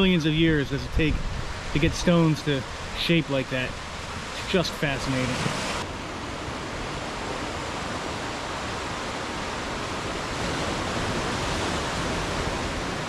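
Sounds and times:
surf washing over stones: 0.8s - 13.0s.

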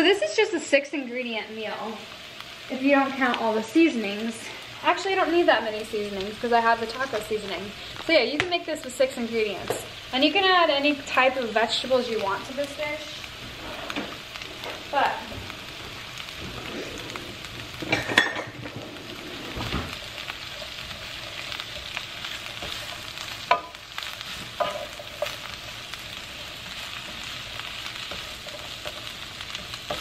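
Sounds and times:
vegetables sizzling in frying pan: 0.0s - 30.0s
wooden spoon stirring: 18.6s - 30.0s.

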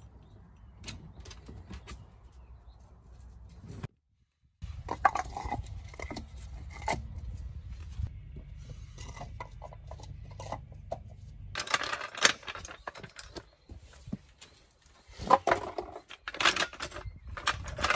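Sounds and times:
clatter of hard objects: 4.8s - 7.0s, 8.9s - 13.6s, 15.1s - 17.9s.

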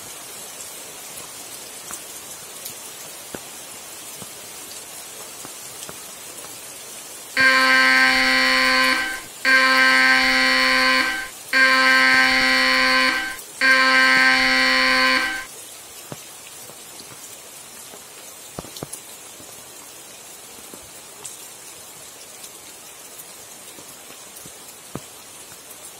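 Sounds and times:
steady rain: 0.0s - 7.4s, 14.6s - 25.9s
phone alert blasts: 7.4s - 15.5s.

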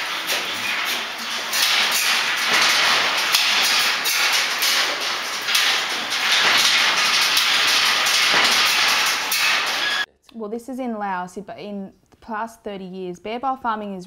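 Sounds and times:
bears rattling metal cages: 0.0s - 10.1s.

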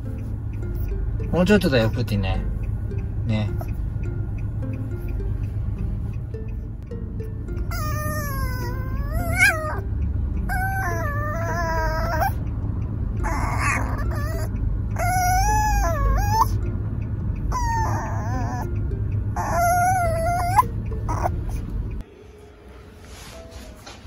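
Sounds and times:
car cabin rumble: 0.0s - 22.0s
puppy whining: 7.5s - 12.5s, 13.1s - 16.7s, 17.4s - 22.0s.

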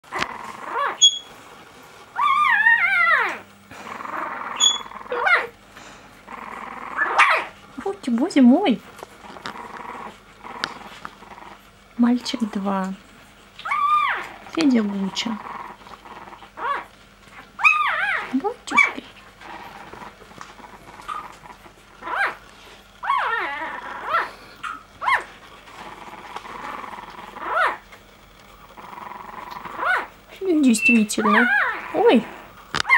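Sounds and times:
puppy whimpering: 0.0s - 1.4s, 2.1s - 5.6s, 6.3s - 7.6s, 9.2s - 12.7s, 13.6s - 28.0s, 28.6s - 32.9s
short rising squeaks: 0.7s - 1.4s, 4.5s - 4.9s.

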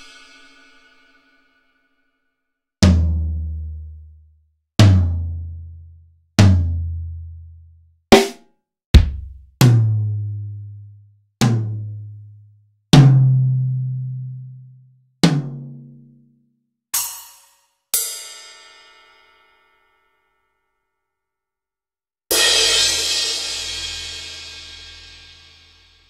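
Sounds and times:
sharp drum hits: 9.0s - 9.4s.

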